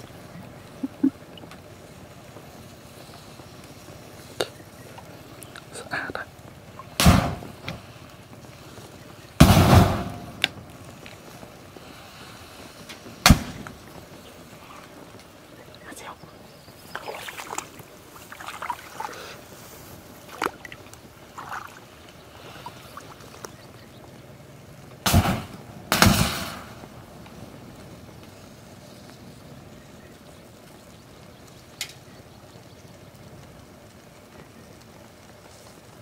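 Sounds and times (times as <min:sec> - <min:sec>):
fire crackling and popping: 0:00.0 - 0:36.0
lighters bursting with gas rush: 0:01.6 - 0:15.4, 0:25.1 - 0:26.9.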